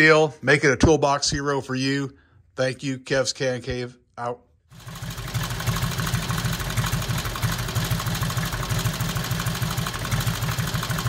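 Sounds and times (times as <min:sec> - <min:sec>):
motorcycle engine idling: 0:04.7 - 0:11.0.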